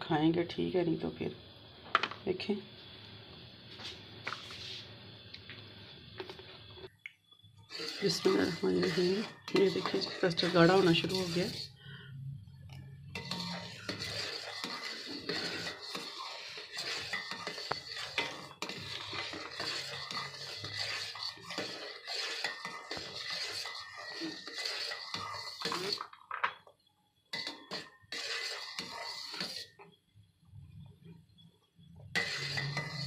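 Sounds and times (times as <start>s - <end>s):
spatula scraping a steel pot: 7.6s - 26.2s, 27.3s - 30.0s, 31.9s - 33.0s.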